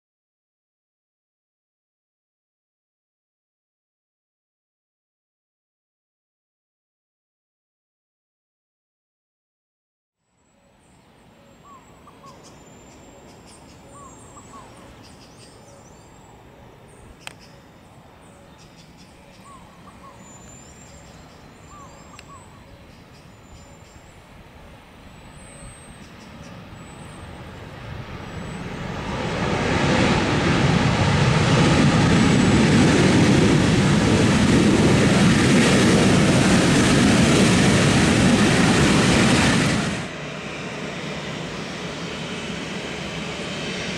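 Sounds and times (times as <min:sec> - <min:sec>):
jet engines roaring: 0:11.8 - 0:43.9
single click: 0:17.2 - 0:17.5.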